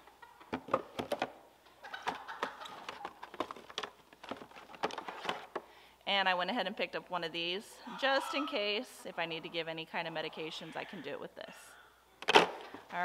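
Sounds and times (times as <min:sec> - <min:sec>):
plastic bottles knocking and clicking: 0:00.4 - 0:01.4, 0:02.0 - 0:05.8
packets rustling: 0:02.0 - 0:05.8.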